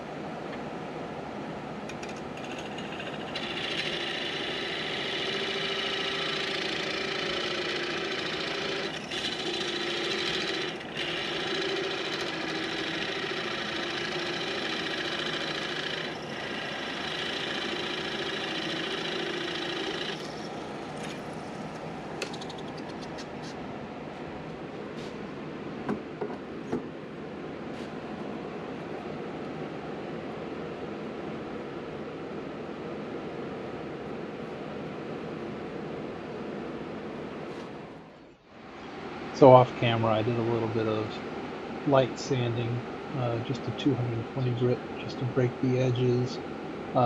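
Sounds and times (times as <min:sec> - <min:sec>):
lathe tool cutting wood: 0:02.4 - 0:21.0
wood lathe running: 0:02.4 - 0:21.2.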